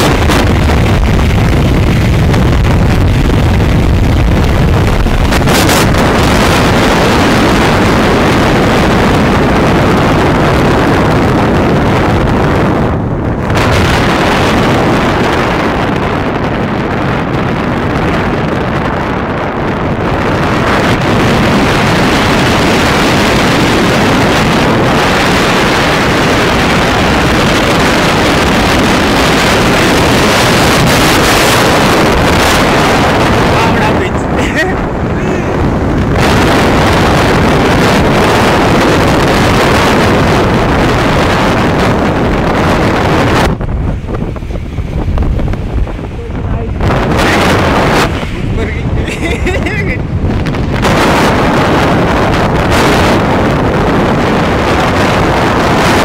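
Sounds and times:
motorcycle engine running: 0:00.0 - 0:56.0
wind rush on microphone: 0:00.0 - 0:56.0.

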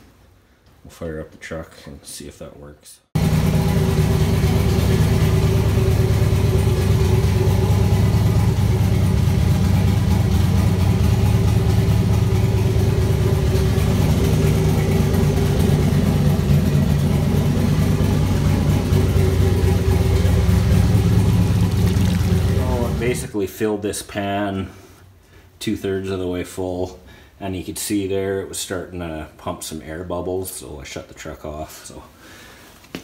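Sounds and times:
truck engine idling: 0:03.2 - 0:23.2.

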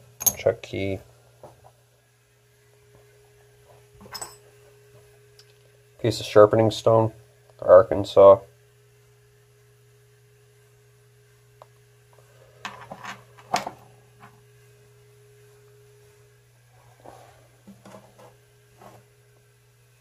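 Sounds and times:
low electrical hum: 0:00.0 - 0:20.0
metal tools clinking on workbench: 0:00.2 - 0:00.5, 0:04.0 - 0:04.5.

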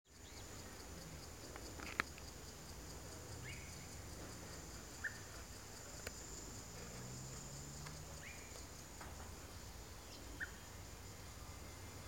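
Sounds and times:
bird chirps: 0:05.0 - 0:05.4, 0:10.0 - 0:10.8.

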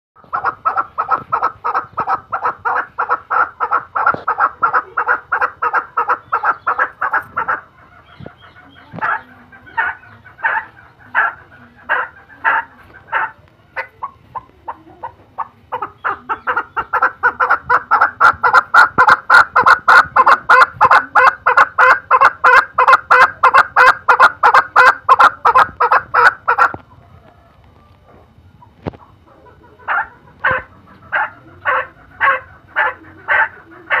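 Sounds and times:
partridge clucking calls: 0:00.2 - 0:27.0, 0:28.6 - 0:34.0.

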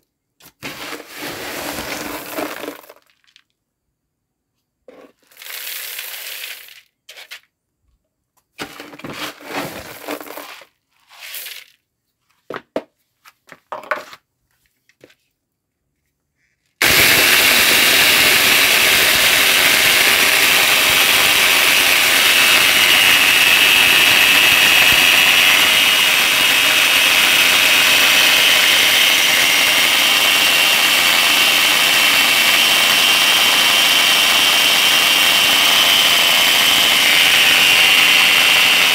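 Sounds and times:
angle grinder milling grain: 0:00.6 - 0:03.1, 0:04.9 - 0:06.8, 0:09.0 - 0:11.7, 0:16.8 - 0:38.9
grain poured into bucket: 0:00.6 - 0:03.5, 0:05.1 - 0:06.9, 0:08.6 - 0:11.8.

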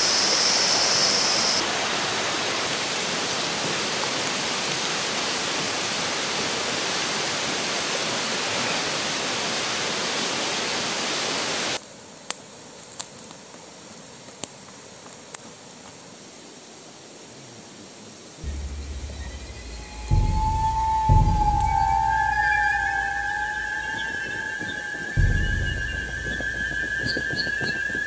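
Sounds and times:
river water rushing: 0:00.0 - 0:11.8
campfire crackling and popping: 0:12.1 - 0:16.0.

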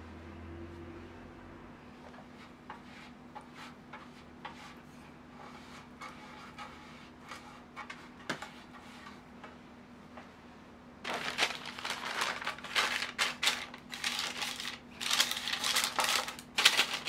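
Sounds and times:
faint steady hum: 0:00.0 - 0:17.0
pastry brush swishing on metal pan: 0:01.9 - 0:09.3.

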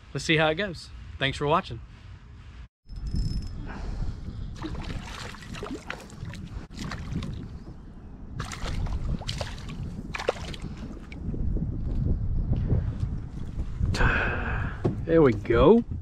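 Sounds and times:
wind rumble on microphone: 0:02.9 - 0:16.0
fish splashing at water surface: 0:04.6 - 0:07.4.

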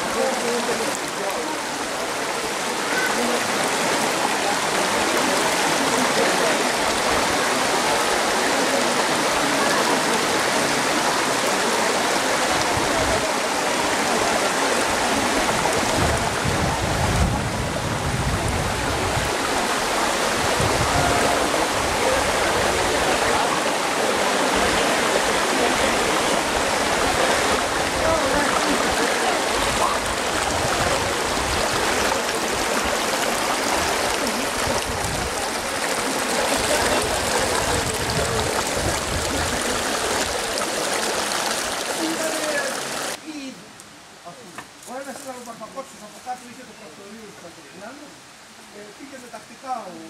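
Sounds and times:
flowing water rushing: 0:00.0 - 0:50.0.

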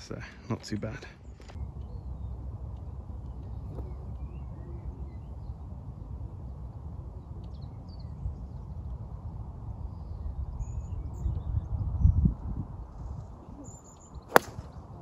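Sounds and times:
wind buffeting microphone: 0:08.2 - 0:15.0.

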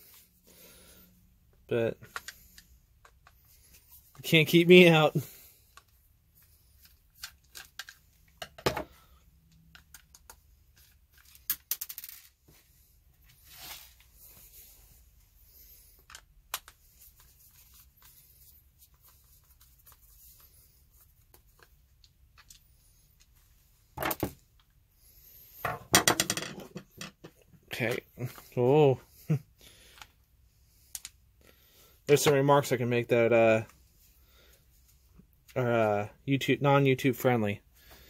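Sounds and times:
small plastic parts shifting: 0:05.7 - 0:12.6.

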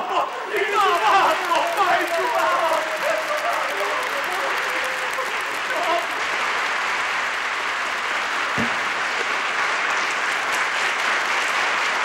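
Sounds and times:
audience applauding: 0:00.0 - 0:12.0
low thump: 0:08.6 - 0:09.0.

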